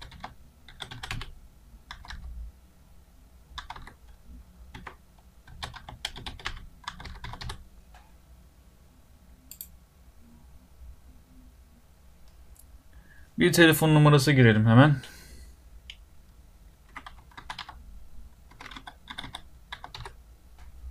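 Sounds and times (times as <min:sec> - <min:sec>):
keyboard typing: 0:00.0 - 0:01.3, 0:01.9 - 0:02.3, 0:03.6 - 0:07.6, 0:16.8 - 0:17.8, 0:18.5 - 0:20.2.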